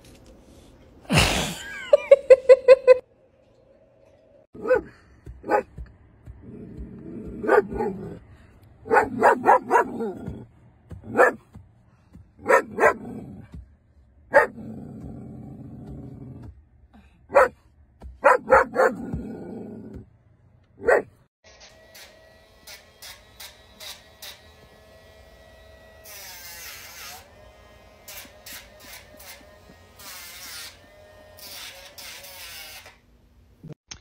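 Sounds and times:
dog barking: 0:04.6 - 0:05.8, 0:07.4 - 0:08.2, 0:08.8 - 0:10.3, 0:11.1 - 0:11.5, 0:12.4 - 0:13.2, 0:14.3 - 0:14.6, 0:17.3 - 0:17.6, 0:18.2 - 0:19.2, 0:20.8 - 0:21.2
dog growling low: 0:06.4 - 0:08.2, 0:09.8 - 0:10.5, 0:12.7 - 0:13.5, 0:14.4 - 0:16.5, 0:18.9 - 0:20.0.

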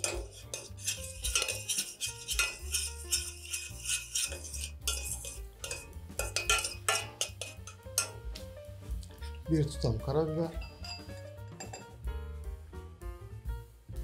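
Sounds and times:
utensil stirring sauce in a pan: 0:00.0 - 0:08.3
clicks and scrapes against pan: 0:00.0 - 0:08.4, 0:10.6 - 0:12.0.

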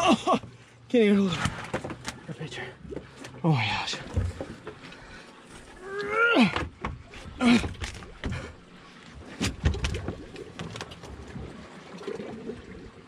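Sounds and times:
man groaning with effort: 0:00.0 - 0:00.4, 0:05.8 - 0:06.7, 0:07.4 - 0:07.8
fish knocking against boat: 0:06.5 - 0:08.6, 0:09.4 - 0:11.1.

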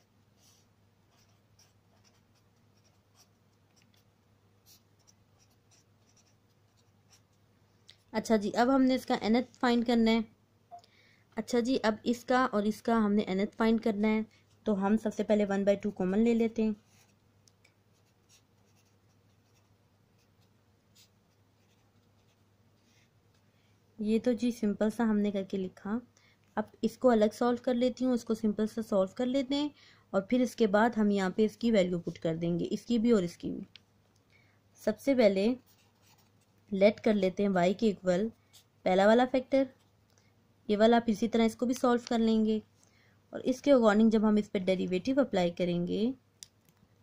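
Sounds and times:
ballpoint pen scratching on paper: 0:00.0 - 0:07.4, 0:17.9 - 0:22.4.

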